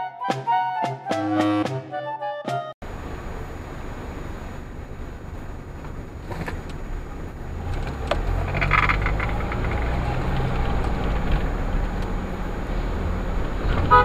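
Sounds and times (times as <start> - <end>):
car engine and road rumble: 2.8 - 14.0.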